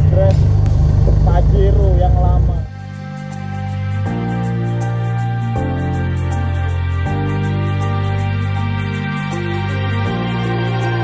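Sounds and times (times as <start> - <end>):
high ticking beat: 0.0 - 3.6
sustained synth chords: 0.0 - 11.0.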